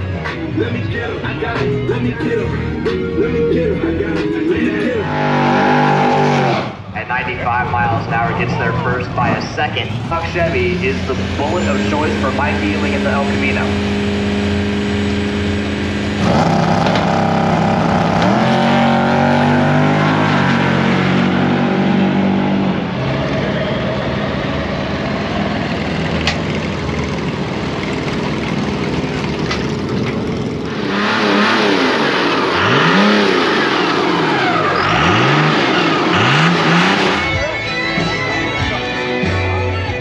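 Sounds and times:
truck engine revving: 0.0 - 40.0
drag car engine launching: 8.1 - 21.6, 23.1 - 37.6.

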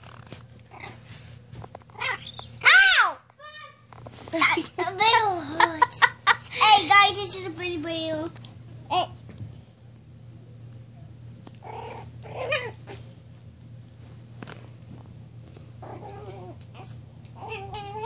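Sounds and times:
puppy growling: 0.7 - 1.0, 11.5 - 13.1, 15.8 - 18.0
puppy whines and yips: 2.0 - 3.2.

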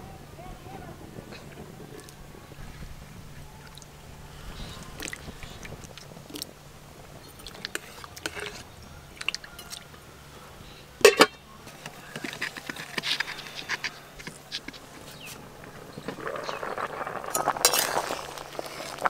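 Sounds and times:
firewood crackling: 0.0 - 19.0
ladle scraping in wok: 7.3 - 9.8, 11.0 - 19.0
metal lid clanking: 7.4 - 8.6, 11.0 - 13.8.

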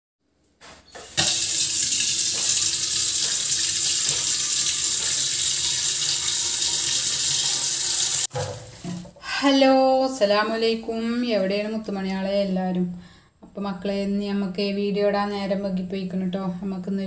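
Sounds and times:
kitchen tap turned on: 1.0 - 9.1
water running into metal pot: 1.0 - 9.2.

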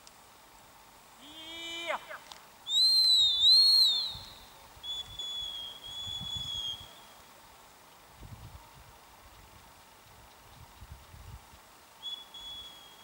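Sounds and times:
dog whistle blasts: 2.7 - 4.3.

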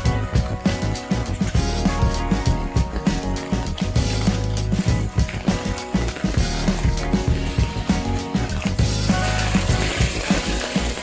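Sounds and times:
background music with low beat: 0.0 - 11.0.

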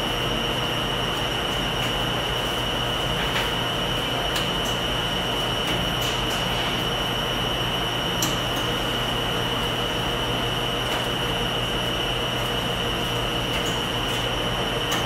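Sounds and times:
washing machines and dryers droning: 0.0 - 15.0.

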